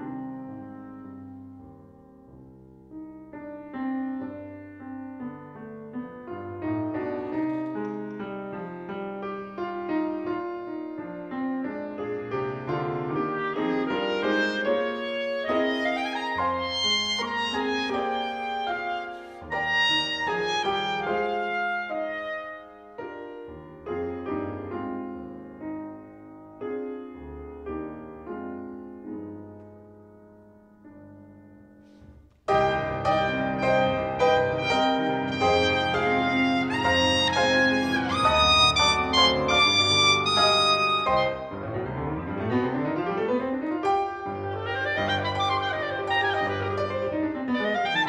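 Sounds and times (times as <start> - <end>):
grand piano playing: 0.0 - 48.0
clarinet: 9.9 - 25.2, 32.5 - 48.0.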